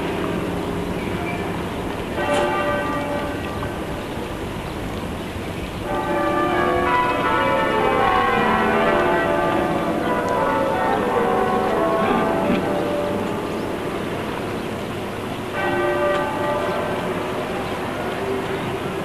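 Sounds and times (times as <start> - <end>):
bells ringing: 5.8 - 14.2, 15.5 - 19.0.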